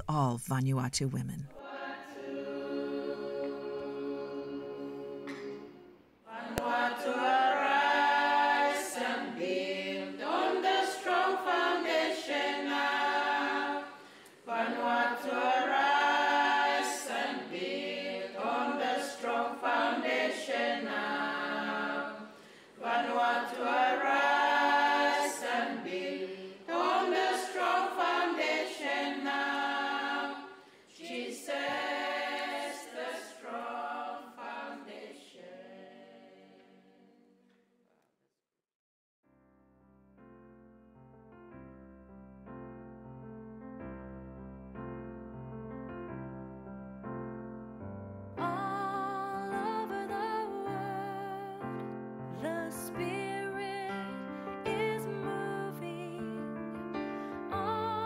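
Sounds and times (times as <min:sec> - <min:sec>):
choir singing: 0:01.6 - 0:37.5, 0:48.4 - 0:58.0.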